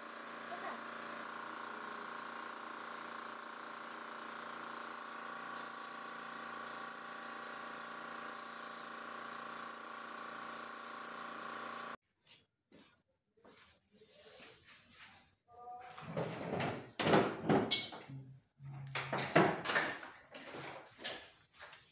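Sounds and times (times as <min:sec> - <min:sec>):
electric motor humming: 0:00.0 - 0:12.0.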